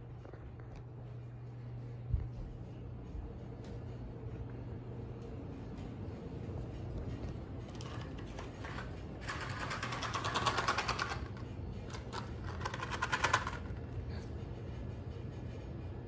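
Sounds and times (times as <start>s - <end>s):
screws rattling in plastic box: 7.8s - 13.8s.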